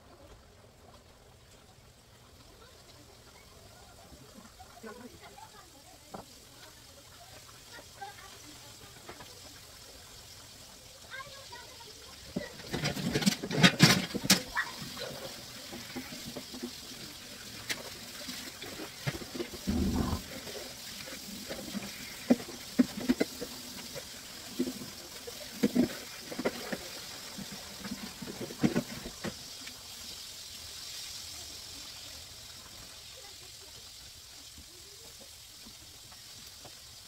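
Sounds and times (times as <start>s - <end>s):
water boiling in a pot: 0.0s - 37.0s
pots and utensils clattering: 12.6s - 14.4s.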